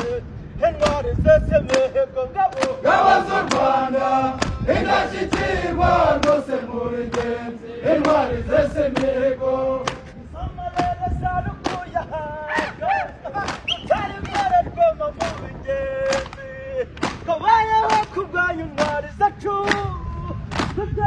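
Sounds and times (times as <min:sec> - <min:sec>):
lead voice singing: 0:00.0 - 0:21.0
hands clapping in rhythm: 0:00.8 - 0:03.7, 0:04.3 - 0:05.6, 0:06.2 - 0:06.5, 0:07.1 - 0:10.1, 0:10.7 - 0:14.6, 0:15.2 - 0:21.0
group chanting: 0:02.6 - 0:10.2.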